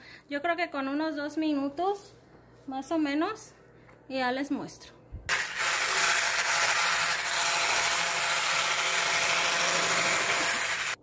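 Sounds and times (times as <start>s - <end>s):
electric whisk in plastic bowl: 5.3s - 11.0s.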